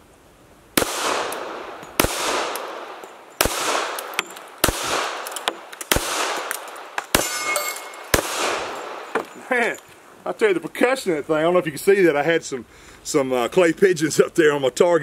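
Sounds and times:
pistol shots with echo: 0:00.8 - 0:09.1
light metallic clinks: 0:02.9 - 0:03.4, 0:04.0 - 0:04.6, 0:06.5 - 0:10.0.

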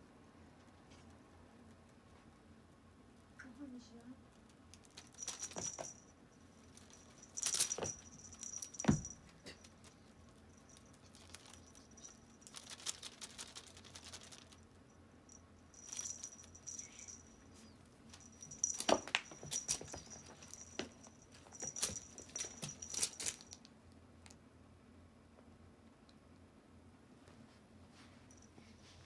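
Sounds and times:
small bell jingle: 0:04.8 - 0:23.6
kitten rustling on rug: 0:06.7 - 0:14.6, 0:15.8 - 0:23.6.

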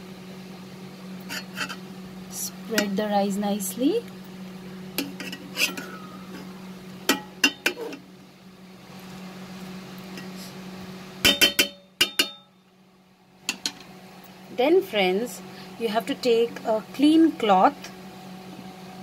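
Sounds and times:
steady low hum: 0:00.0 - 0:19.0
metal spatula clinking on pot: 0:11.2 - 0:12.4.

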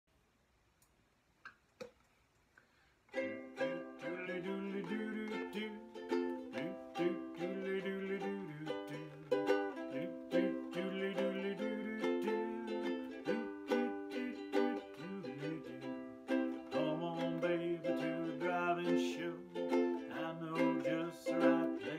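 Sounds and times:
ukulele strumming chords: 0:03.2 - 0:21.9.

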